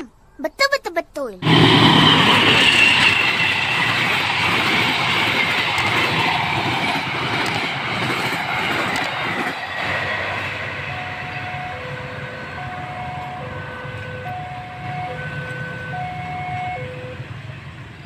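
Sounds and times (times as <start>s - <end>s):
high ringing tone: 1.4s - 4.2s, 10.7s - 17.3s
train wheels rumbling on rails: 1.4s - 18.0s.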